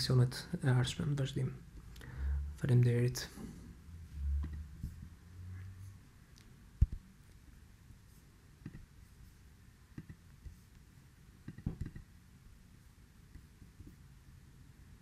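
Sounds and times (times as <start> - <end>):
computer mouse clicking: 8.6 - 8.9, 10.0 - 10.2, 11.4 - 12.1.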